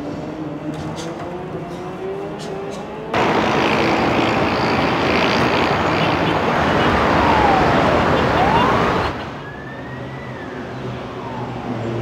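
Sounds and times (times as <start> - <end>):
road traffic roar: 0.0 - 12.0
siren wailing: 6.2 - 11.8.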